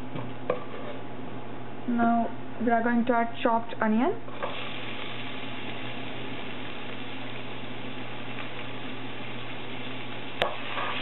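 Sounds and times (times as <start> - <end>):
onion sizzling in hot oil: 4.2 - 11.0.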